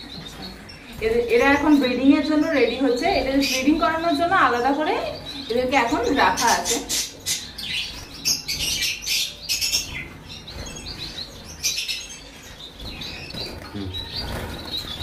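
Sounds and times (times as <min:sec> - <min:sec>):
finches chirping: 0:00.0 - 0:15.0
wings fluttering: 0:12.8 - 0:15.0.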